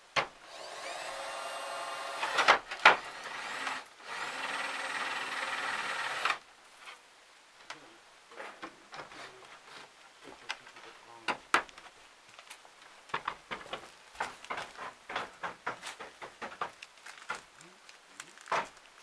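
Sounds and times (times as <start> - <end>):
small power tool running: 0.4 - 2.5, 3.1 - 6.4.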